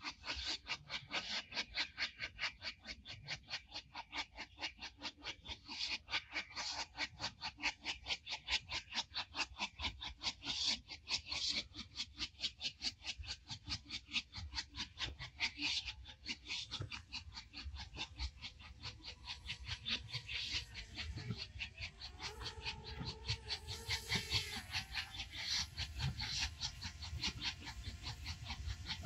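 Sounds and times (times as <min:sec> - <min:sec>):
steam locomotive chuffing: 0:19.8 - 0:29.0.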